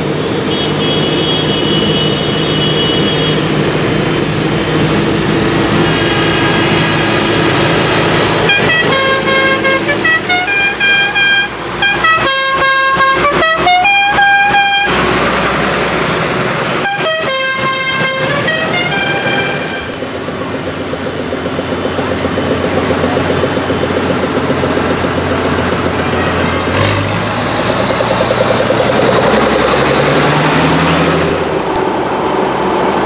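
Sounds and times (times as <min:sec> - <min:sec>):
tractor diesel engines running: 0:00.0 - 0:33.0
horn playing a tune: 0:08.3 - 0:15.0, 0:16.8 - 0:20.0.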